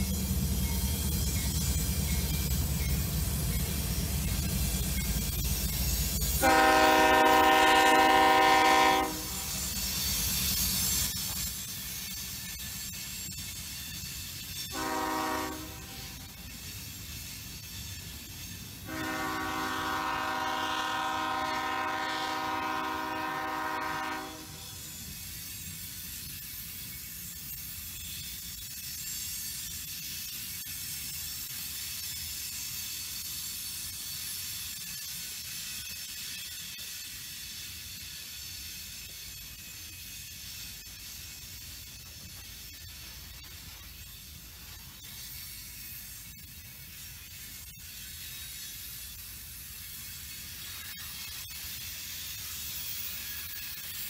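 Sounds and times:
train cars rolling on rails: 0.0 - 54.0
train horn blast: 6.4 - 9.5, 14.7 - 16.2, 18.8 - 24.8.

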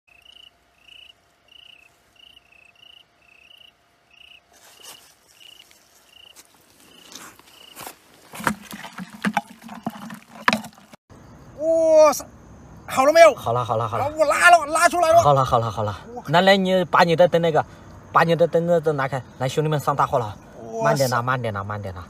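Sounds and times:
insect chirping: 0.1 - 22.0
rustling and wet handling in mud: 4.5 - 11.0.

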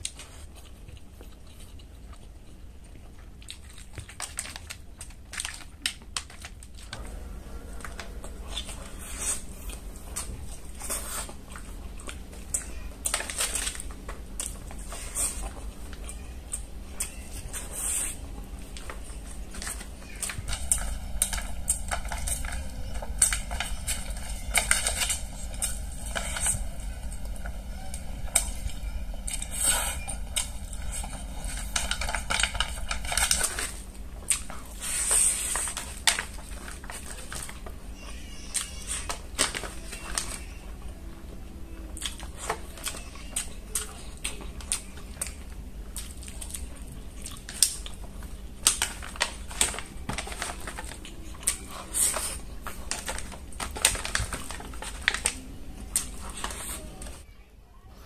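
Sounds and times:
chewing with wet smacks: 0.0 - 7.1, 29.2 - 37.6, 41.8 - 49.4.

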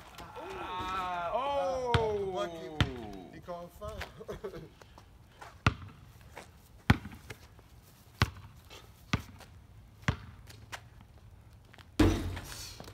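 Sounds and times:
basketball bouncing on asphalt: 1.9 - 2.2, 5.4 - 12.9.

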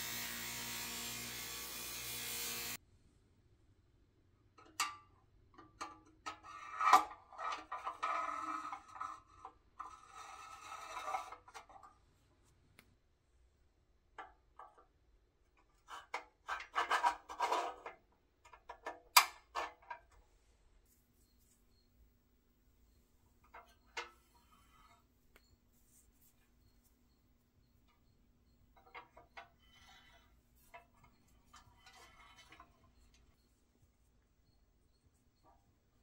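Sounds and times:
steel pins scraping through holes: 27.9 - 33.4.

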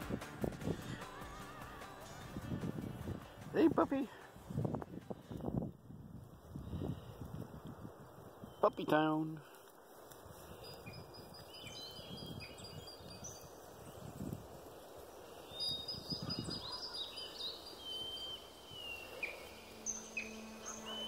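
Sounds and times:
small birds chirping and whistling: 8.0 - 9.1, 10.3 - 21.0
soft rustling: 9.4 - 11.7.

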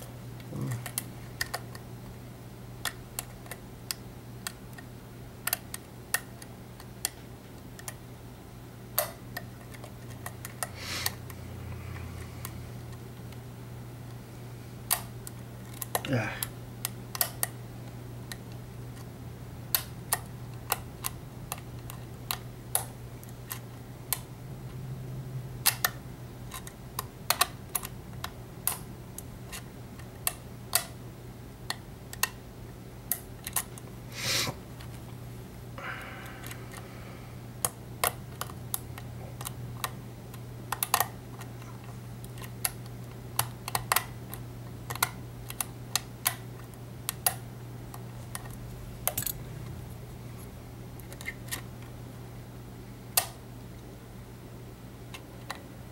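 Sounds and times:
steady low hum: 0.0 - 55.9
lock pick clicking: 48.3 - 49.4.

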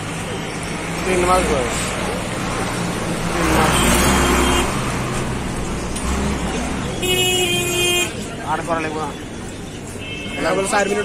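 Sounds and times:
car horn honking: 3.6 - 4.8, 6.9 - 8.2.

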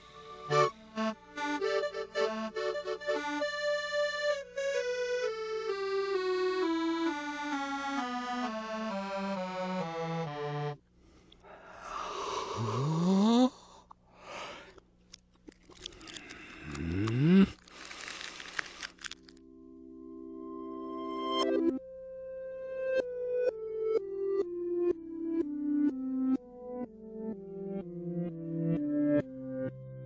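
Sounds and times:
reversed accordion-toned notes: 0.0 - 10.8
brief rustling: 17.6 - 19.4.

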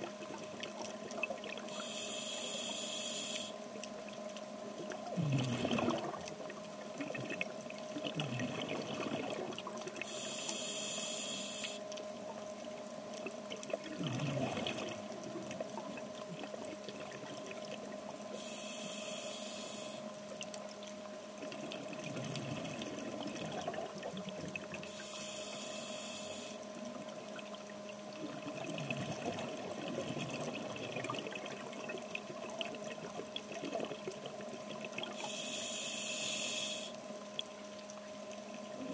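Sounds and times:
exhaled bubbles underwater: 0.0 - 38.9
faint hum: 0.0 - 38.9
breathing through regulator: 1.7 - 3.6, 10.0 - 11.9, 18.3 - 20.1, 24.8 - 26.7, 35.1 - 37.0.

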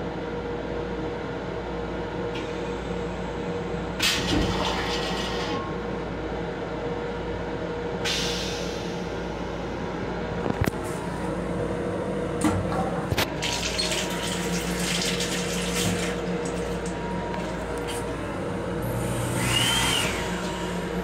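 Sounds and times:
train car hum: 0.0 - 21.0
faucet water running into sink: 13.4 - 17.0.

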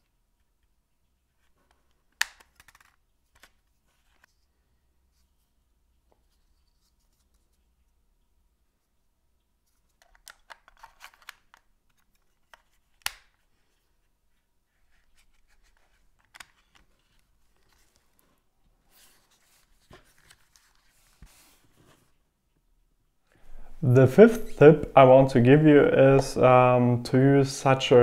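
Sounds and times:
plastic clicks and scraping: 9.9 - 13.4.

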